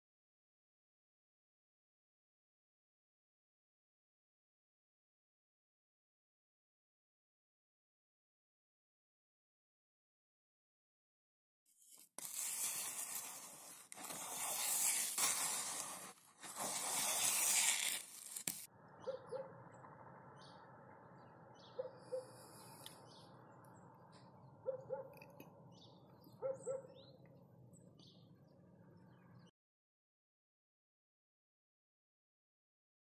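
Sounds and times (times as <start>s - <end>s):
faint high bird chirps: 18.9s - 29.5s.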